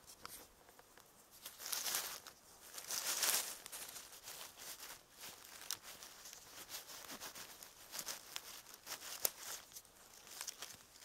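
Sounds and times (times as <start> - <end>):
dry leaves rustling and crackling: 1.3 - 11.0.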